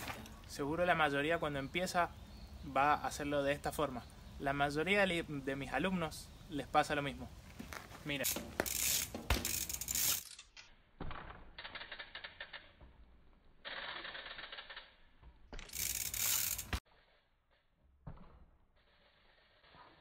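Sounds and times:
bicycle freehub ratchet clicking: 8.2s - 10.6s, 11.5s - 12.9s, 13.5s - 16.8s.

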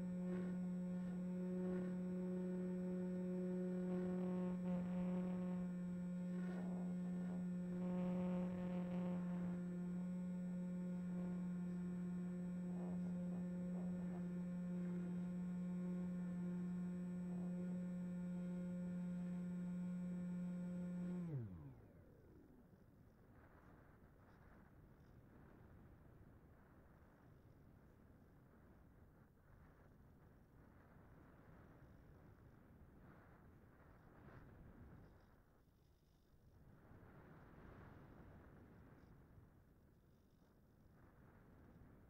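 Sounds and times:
electric motor and propeller hum: 0.0s - 22.8s.

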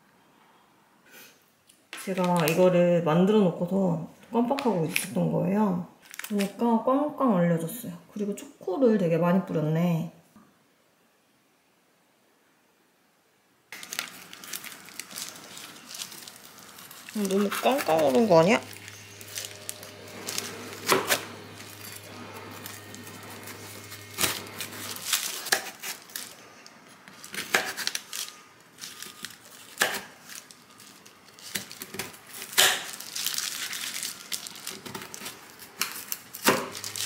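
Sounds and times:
parchment paper crinkling: 2.0s - 2.7s, 6.0s - 6.6s, 13.8s - 37.0s
knife cracking frozen bark: 25.0s - 26.3s, 27.3s - 28.3s, 29.2s - 30.4s, 31.5s - 33.0s.

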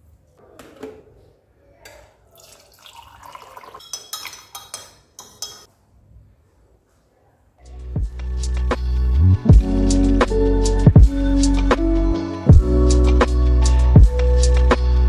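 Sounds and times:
spoon stirring in a ceramic mug: 3.5s - 5.7s
spoon tapping a mug: 3.8s - 5.7s.

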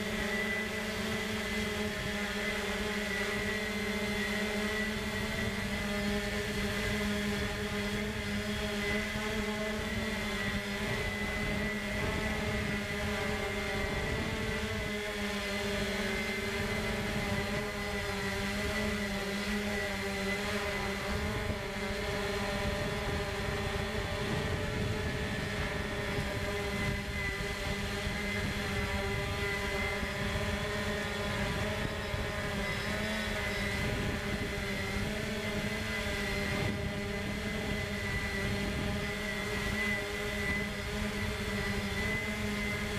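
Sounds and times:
drone propellers whining: 0.0s - 42.9s.

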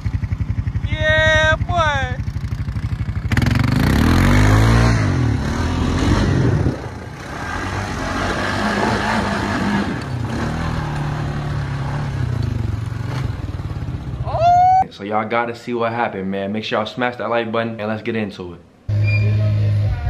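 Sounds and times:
atv engine revving: 0.0s - 14.8s.

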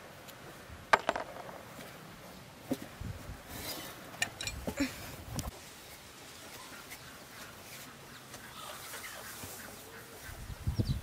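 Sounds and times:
tools clinking: 4.2s - 4.7s.

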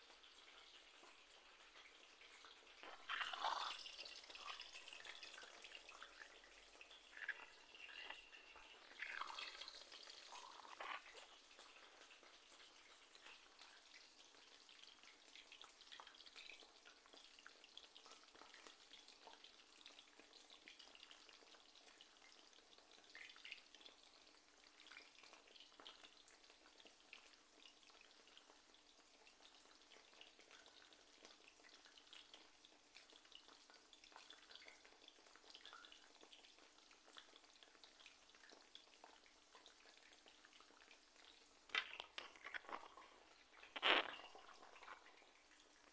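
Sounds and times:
hot oil sizzling and popping: 0.0s - 45.9s.

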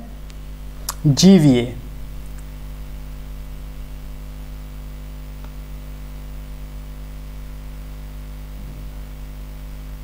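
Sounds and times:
electrical hum: 0.0s - 10.0s.

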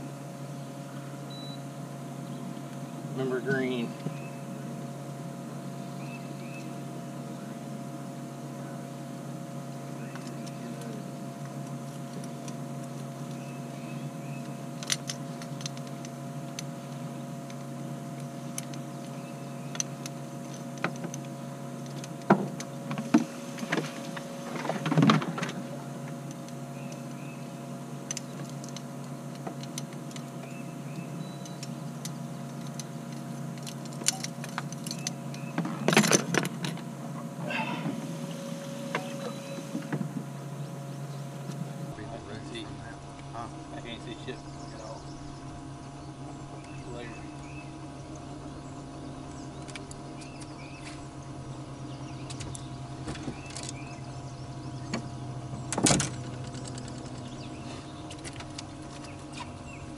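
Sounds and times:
electric boat motor humming: 0.0s - 59.9s
clicks and knocks of gear: 10.1s - 27.2s, 28.0s - 36.9s, 52.2s - 54.0s, 54.8s - 59.8s.

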